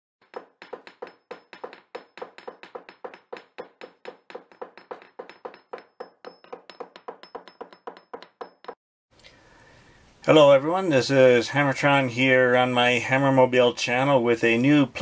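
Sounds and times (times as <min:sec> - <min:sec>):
sharp ringing knocking taps: 0:00.2 - 0:08.8.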